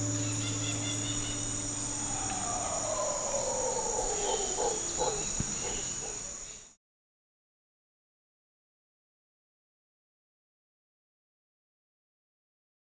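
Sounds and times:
long downward gliding call: 0.0s - 6.2s
insects trilling: 0.0s - 6.7s.

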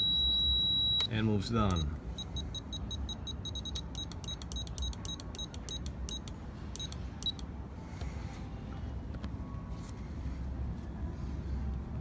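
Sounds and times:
short high beeps: 0.0s - 1.1s, 1.7s - 7.4s.

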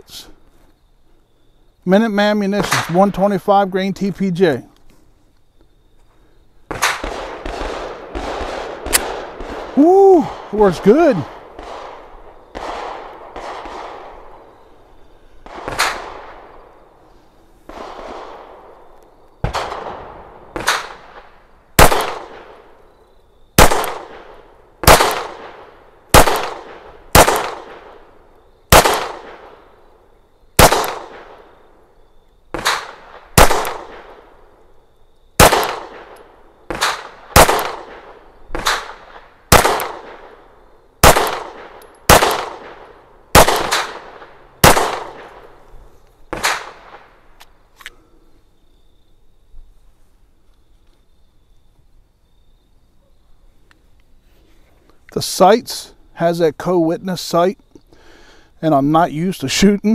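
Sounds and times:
pistol shots: 6.7s - 14.6s, 15.4s - 16.7s, 17.7s - 22.7s, 23.6s - 28.1s, 28.7s - 29.7s, 30.6s - 31.6s, 32.5s - 34.3s, 35.4s - 40.4s, 41.0s - 45.6s, 46.3s - 47.1s.

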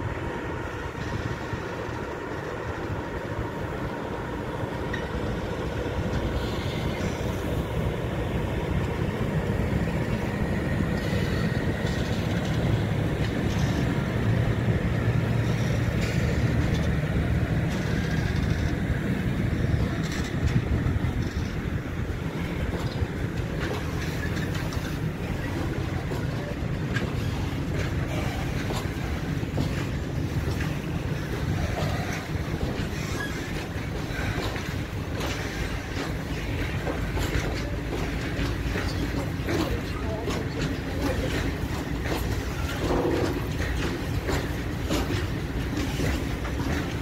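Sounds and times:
train wheels rolling on rails: 0.0s - 47.0s.

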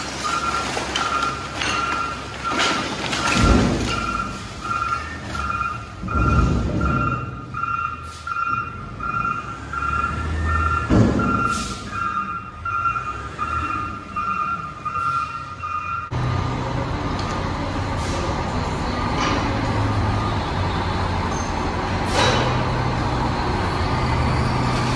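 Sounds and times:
trash thudding down: 0.0s - 7.5s, 10.8s - 11.9s
backup alarm beeping: 0.3s - 16.1s.

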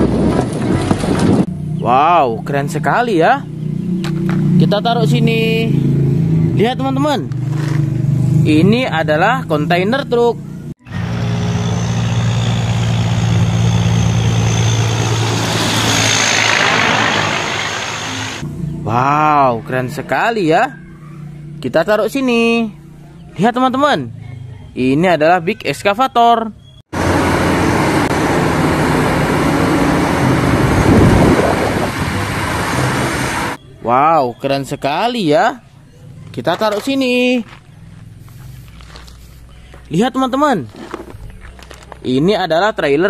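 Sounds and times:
truck diesel engine droning: 10.4s - 19.4s, 26.9s - 33.6s
tyres and air rushing: 10.8s - 18.4s, 27.0s - 33.6s.

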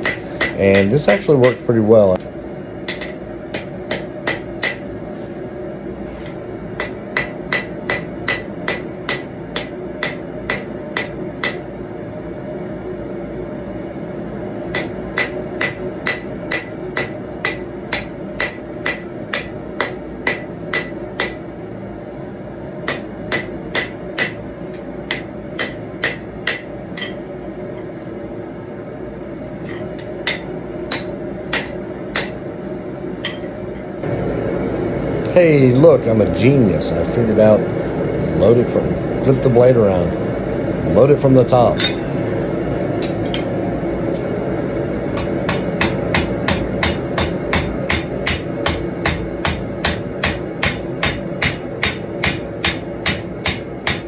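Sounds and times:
hammer striking hot steel on anvil: 0.0s - 1.6s, 2.8s - 4.9s, 6.8s - 11.7s, 14.7s - 21.5s, 22.8s - 27.3s, 30.0s - 32.4s, 33.2s - 33.6s, 35.6s - 43.5s, 45.2s - 54.0s.

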